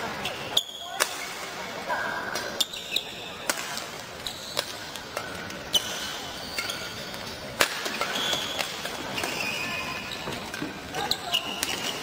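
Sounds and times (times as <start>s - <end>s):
shoes squeaking on court floor: 2.4s - 12.0s
rackets striking shuttlecock: 3.4s - 9.5s.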